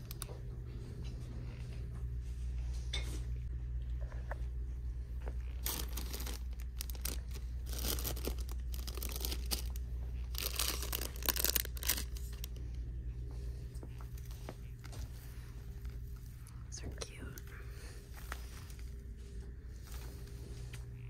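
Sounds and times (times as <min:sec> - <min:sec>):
plastic packaging crinkling: 0:00.0 - 0:00.4, 0:05.4 - 0:12.6
steady low hum: 0:00.0 - 0:21.0.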